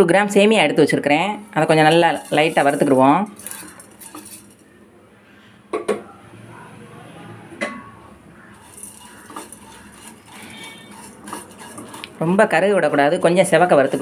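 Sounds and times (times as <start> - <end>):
utensils knocking against pan: 1.8 - 4.6, 8.6 - 12.2.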